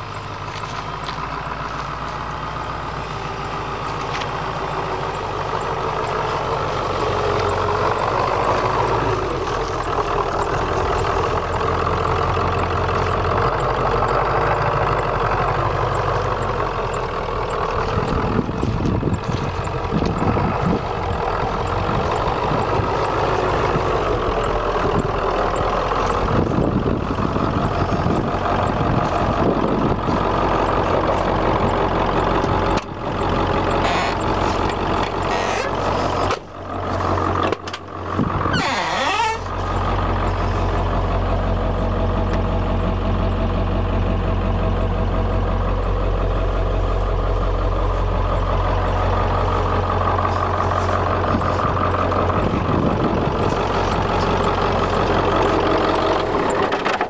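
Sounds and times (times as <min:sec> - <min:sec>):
diesel engine idling: 0:00.0 - 0:57.0
car door creaking open: 0:38.4 - 0:39.6.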